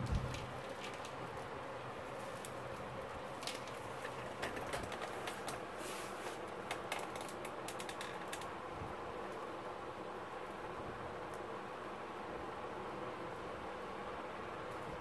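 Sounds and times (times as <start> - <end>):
steady hiss: 0.0 - 15.0
plastic stems clicking: 6.6 - 8.5.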